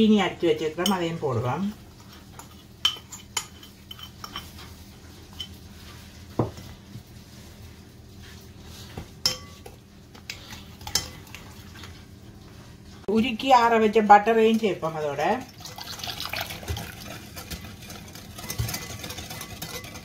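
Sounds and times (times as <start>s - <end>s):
whisk scraping glass bowl: 1.8s - 6.1s, 15.7s - 20.0s.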